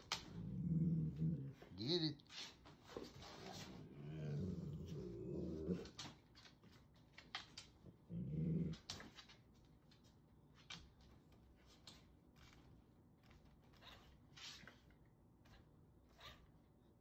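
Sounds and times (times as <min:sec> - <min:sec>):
dog growling: 0:00.1 - 0:01.8, 0:03.5 - 0:06.1, 0:07.9 - 0:09.0.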